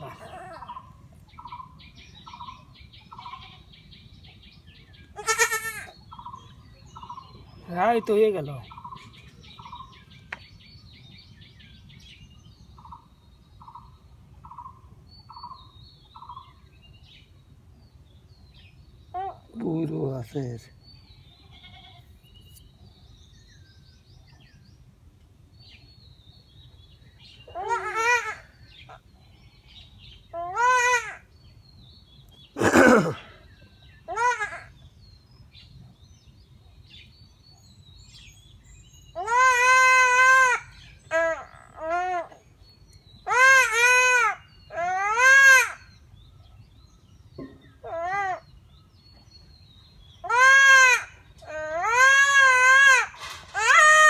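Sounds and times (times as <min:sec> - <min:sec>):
goat kid bleating in distress: 0:05.2 - 0:05.9, 0:21.4 - 0:22.1
faint bird chirps: 0:12.6 - 0:24.9.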